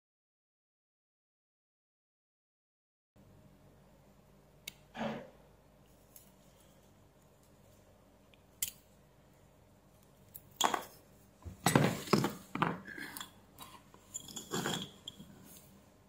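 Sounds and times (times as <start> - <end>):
small parts and tools on workbench: 3.2 - 16.0
knocks and clinks: 14.0 - 15.4.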